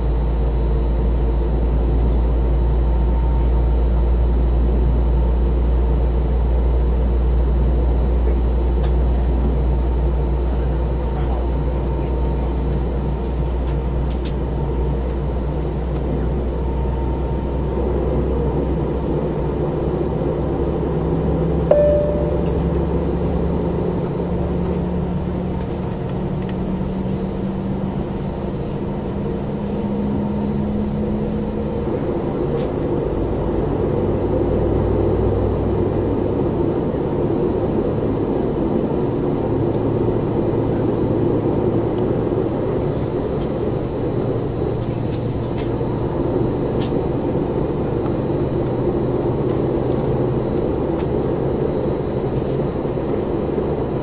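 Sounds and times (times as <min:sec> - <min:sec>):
low tone rising in pitch: 0:21.7 - 0:23.7
deep hum: 0:21.7 - 0:24.5
aircraft cabin air rush: 0:22.1 - 0:33.4, 0:36.9 - 0:54.0.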